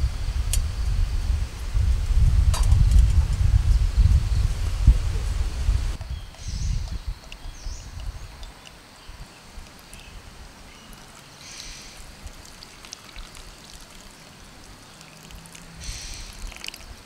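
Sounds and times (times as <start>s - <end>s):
hot water pouring into metal cup: 10.9s - 17.0s
water splashing: 10.9s - 17.0s.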